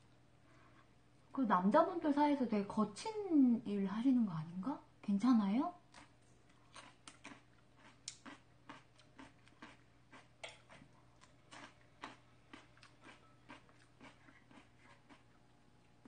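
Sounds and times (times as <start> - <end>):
carrot crunching: 5.9 - 16.0.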